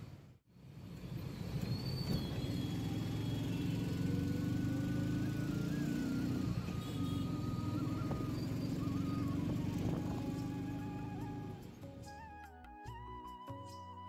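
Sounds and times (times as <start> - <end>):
auto-rickshaw engine running: 0.0 - 11.9
slow melodic background music: 4.0 - 14.0.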